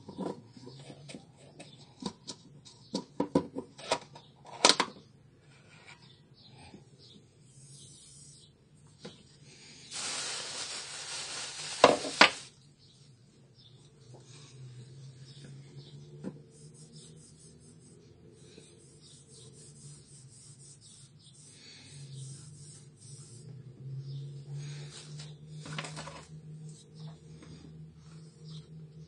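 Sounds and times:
hands rubbing plastic and metal: 10.0s - 12.5s.

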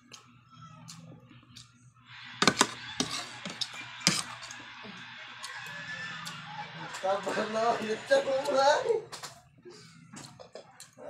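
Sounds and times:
cutlery clinking against plate: 2.4s - 4.6s.

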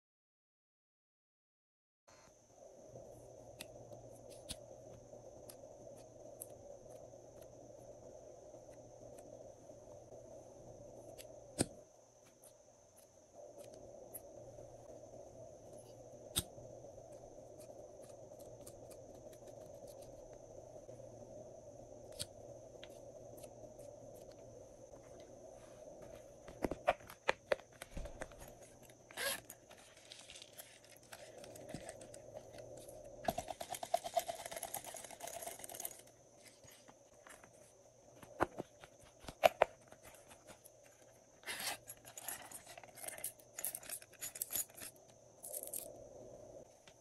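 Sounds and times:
beads and glitter rustling: 28.4s - 32.9s
zipper pulled open: 29.1s - 29.6s.

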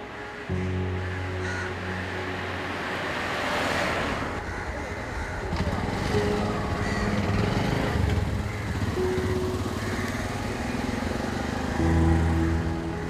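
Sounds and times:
traffic engines putter: 0.0s - 13.0s.

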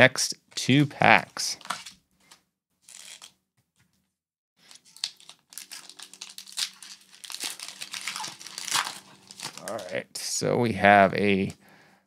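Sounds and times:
foil wrapper crinkling and tearing: 4.6s - 10.0s.

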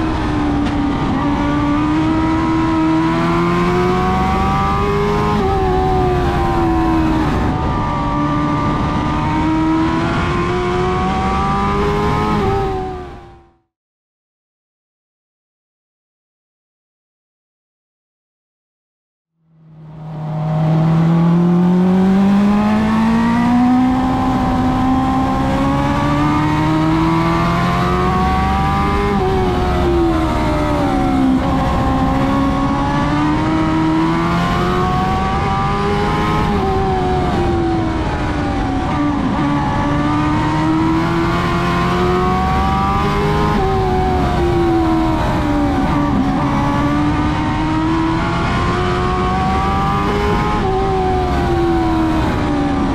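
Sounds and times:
race car engine running hard: 19.8s - 52.9s.

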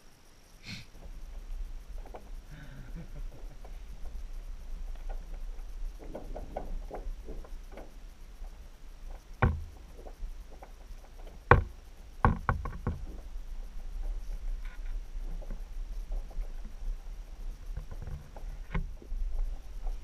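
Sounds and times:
low steady rumble: 0.0s - 20.0s
underwater knocks and taps: 9.4s - 10.1s, 11.5s - 13.2s.

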